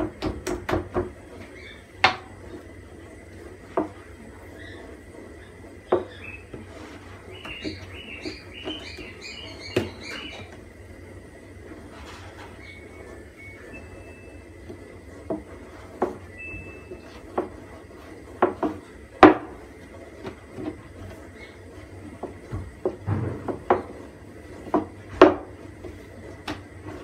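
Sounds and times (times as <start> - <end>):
rolling pin knocking on wooden board: 0.0 - 1.2, 2.0 - 2.3, 5.8 - 6.6, 17.1 - 17.6, 18.3 - 19.6, 22.1 - 24.0, 24.6 - 25.6.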